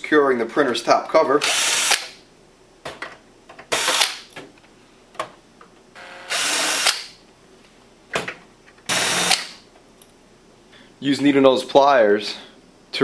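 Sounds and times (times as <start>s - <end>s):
cordless drill running: 1.4s - 2.0s, 3.7s - 4.1s, 6.0s - 7.0s, 8.9s - 9.4s.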